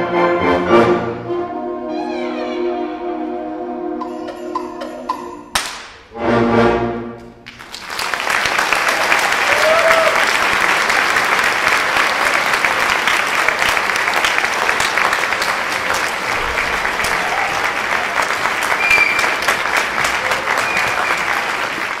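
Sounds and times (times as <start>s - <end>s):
audience applauding: 7.4s - 22.0s.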